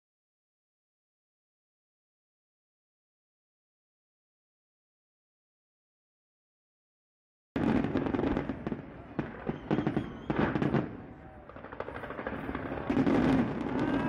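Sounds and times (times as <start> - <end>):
fireworks crackling: 7.6 - 14.0.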